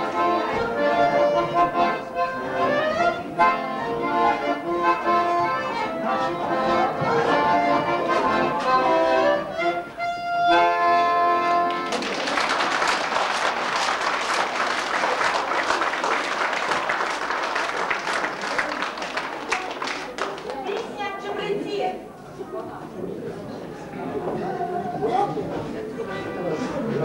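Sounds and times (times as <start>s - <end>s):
accordion folk dance tune: 0.0s - 12.6s
audience applauding: 11.7s - 21.0s.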